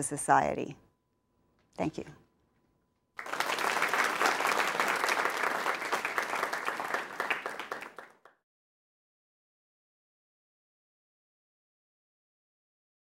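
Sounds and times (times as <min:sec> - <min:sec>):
audience applauding: 0:03.2 - 0:08.4.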